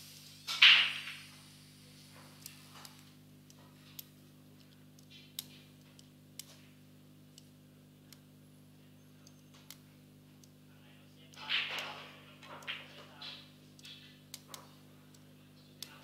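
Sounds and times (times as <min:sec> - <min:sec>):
steady low hum: 0:00.0 - 0:16.0
pool balls clicking: 0:00.5 - 0:01.3, 0:11.3 - 0:14.9.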